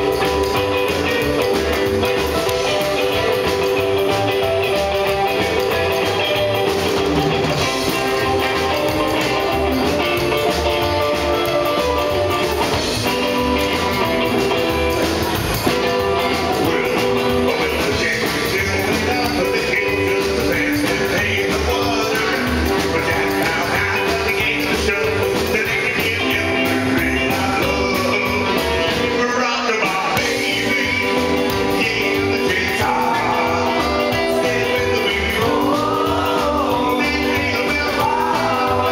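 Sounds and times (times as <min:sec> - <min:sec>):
saxophone: 0:00.0 - 0:17.6
electric guitar: 0:00.0 - 0:38.9
man singing: 0:00.0 - 0:38.9.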